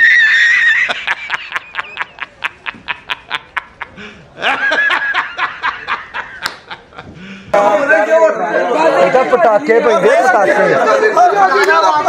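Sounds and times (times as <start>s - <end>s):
man laughing hard: 0.0s - 7.2s.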